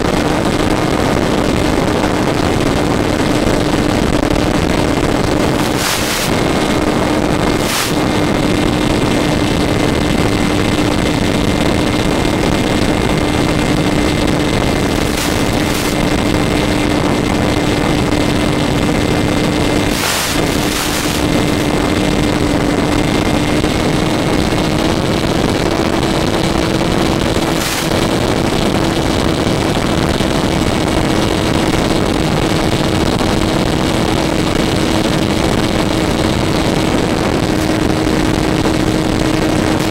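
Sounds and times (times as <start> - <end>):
model airplane motor humming: 0.3 - 39.9
rushing hiss: 19.9 - 21.2.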